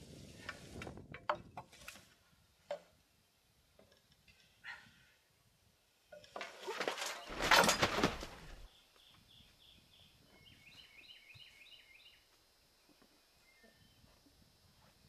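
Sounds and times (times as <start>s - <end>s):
person climbing and rustling: 0.0s - 3.0s, 6.2s - 8.7s.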